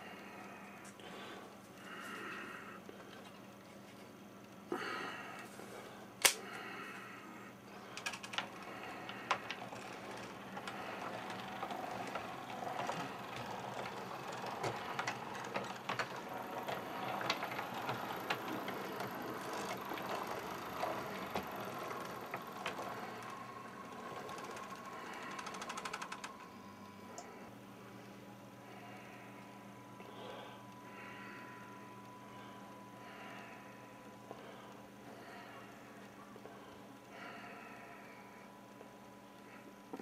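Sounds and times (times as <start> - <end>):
model train motor whirring: 8.0 - 26.5
wheels clicking on track: 8.0 - 26.6.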